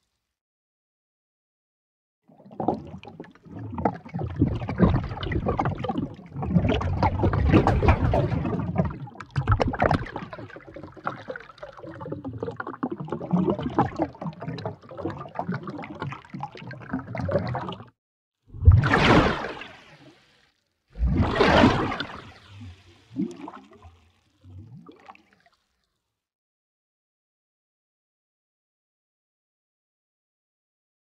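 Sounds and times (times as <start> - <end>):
pitch-shifted water splashes: 2.4 - 17.9, 18.5 - 25.8.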